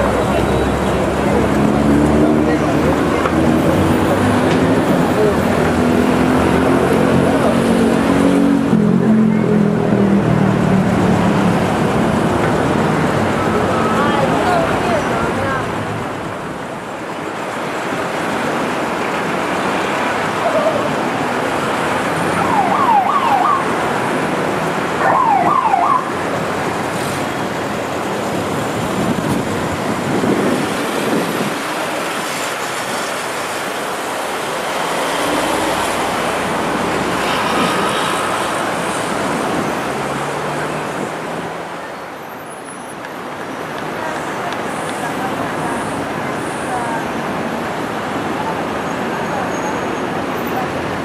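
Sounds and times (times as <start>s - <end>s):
city street traffic: 0.0s - 51.0s
warbling siren blasts: 22.3s - 23.7s, 25.0s - 26.1s.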